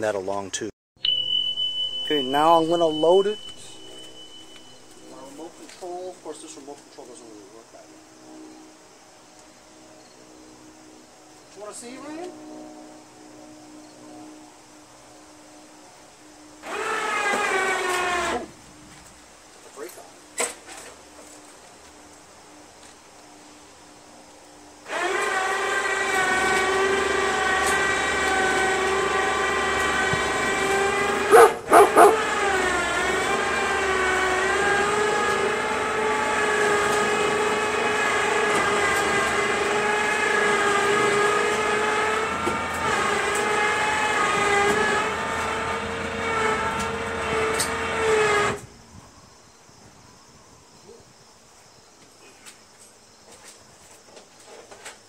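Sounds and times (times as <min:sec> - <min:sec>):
electric winch motor whining: 0:01.0 - 0:06.5, 0:16.5 - 0:18.6, 0:24.8 - 0:48.7.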